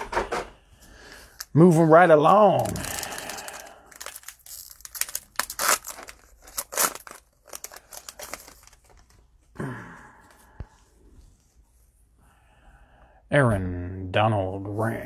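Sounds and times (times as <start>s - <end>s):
cellophane wrapper crinkling and tearing: 1.2s - 9.3s.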